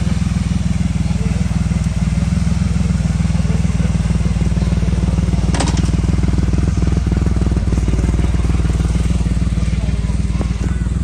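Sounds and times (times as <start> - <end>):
motorcycle engine idling: 0.0 - 11.0
sharp clack: 5.5 - 6.2.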